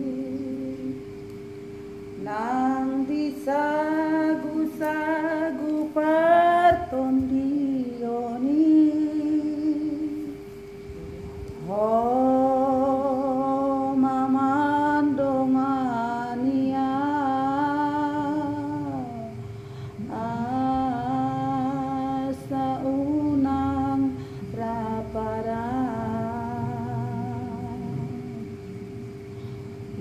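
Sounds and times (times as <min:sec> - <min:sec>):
woman singing: 0:00.0 - 0:01.0, 0:02.2 - 0:10.4, 0:11.6 - 0:19.4, 0:20.0 - 0:28.5.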